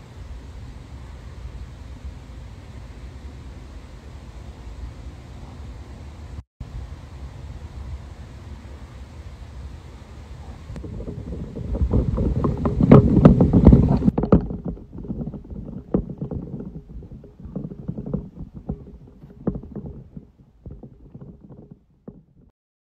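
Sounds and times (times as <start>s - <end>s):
wind buffeting microphone: 10.5s - 22.5s.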